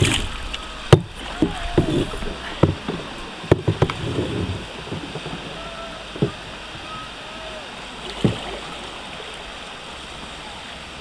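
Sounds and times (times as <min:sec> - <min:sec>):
paddles splashing in water: 0:00.0 - 0:11.0
water lapping at hull: 0:00.0 - 0:11.0
sharp knocks: 0:00.9 - 0:05.4.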